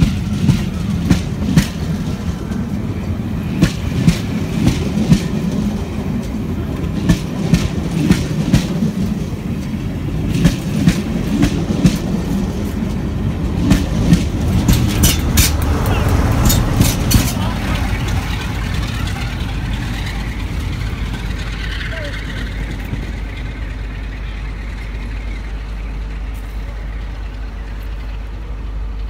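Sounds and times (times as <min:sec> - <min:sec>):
train wheels rumbling on rails: 0:00.0 - 0:29.0
wheels clacking over rail joints: 0:00.0 - 0:29.0.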